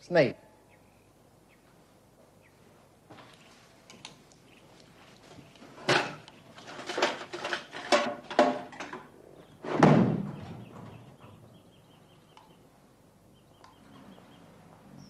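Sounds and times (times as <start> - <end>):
heavy thump: 9.7 - 10.9.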